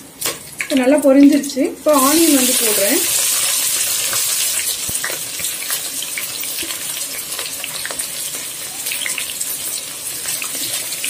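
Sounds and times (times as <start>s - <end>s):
onions sizzling in hot oil: 0.0s - 11.0s.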